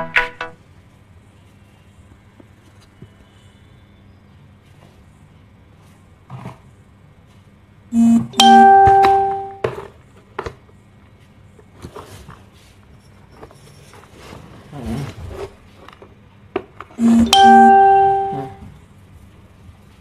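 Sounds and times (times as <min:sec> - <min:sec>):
electronic chime: 0:08.0 - 0:09.6, 0:17.0 - 0:18.6
rustling and handling noises: 0:09.6 - 0:17.7.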